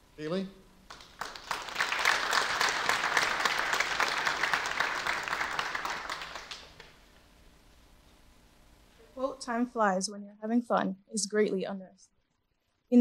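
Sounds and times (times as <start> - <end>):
small group clapping: 0.8 - 7.0.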